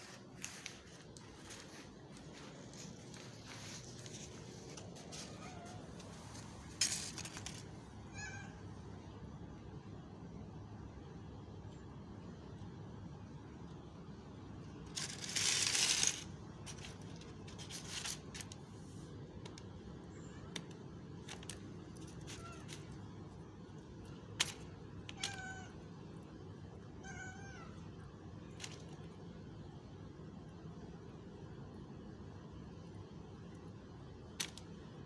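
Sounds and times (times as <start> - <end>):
plastic bag rustling: 0.0 - 7.8, 14.9 - 18.6
cat meowing: 5.1 - 6.0, 8.1 - 8.6, 25.1 - 25.8, 27.0 - 27.8.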